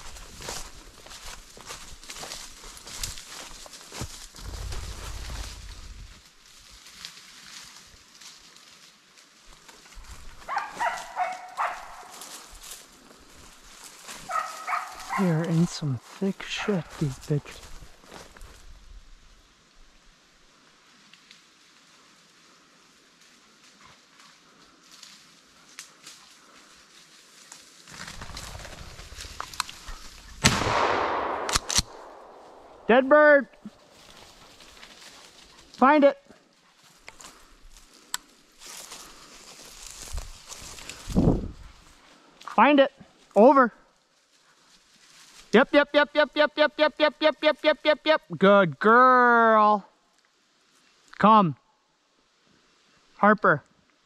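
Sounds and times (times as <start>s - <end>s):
footsteps: 0.0s - 19.0s, 23.2s - 30.4s, 31.2s - 43.4s
rustling brush: 0.0s - 19.4s, 33.6s - 35.8s, 44.2s - 45.6s
low rumble: 4.4s - 6.2s
animal calling: 14.2s - 15.5s
twigs snapping: 27.5s - 30.6s, 31.3s - 32.7s, 37.0s - 41.2s
shotgun blast: 30.4s - 32.8s.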